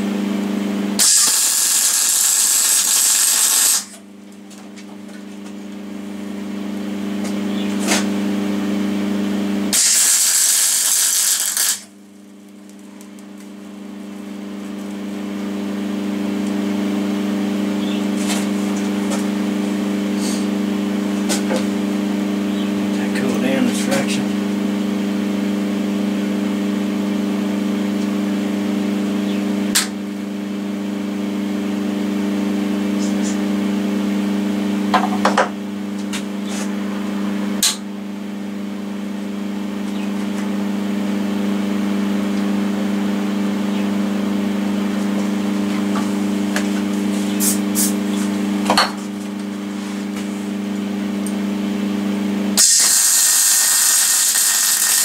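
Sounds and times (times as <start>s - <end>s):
electrical hum: 0.0s - 55.0s
welder arc crackling: 1.0s - 4.0s, 9.7s - 13.2s, 52.6s - 55.0s.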